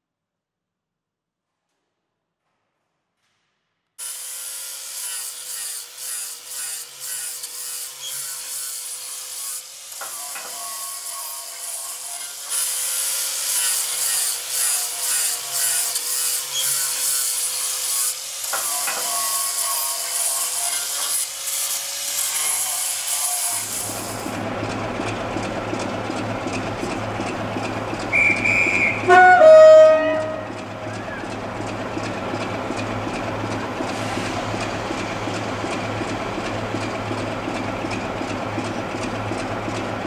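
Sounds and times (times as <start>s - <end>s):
power tool grinding on steel: 4.0s - 24.4s
diesel locomotive idling: 23.6s - 40.0s.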